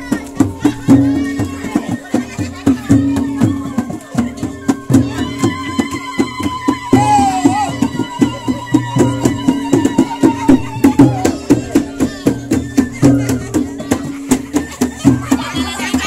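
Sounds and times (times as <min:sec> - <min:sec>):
quick even drumbeats: 0:00.0 - 0:16.0.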